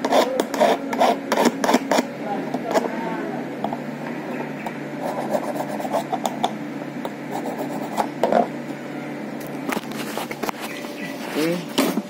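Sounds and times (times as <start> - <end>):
hand file rasping on key: 0.0 - 2.1.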